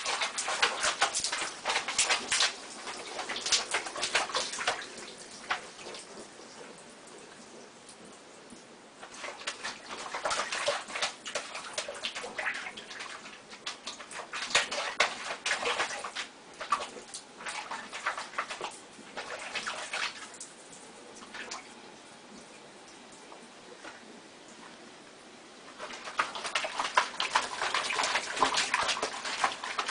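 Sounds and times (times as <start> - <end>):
water splashing in a sink: 0.0 - 24.8, 25.6 - 29.9.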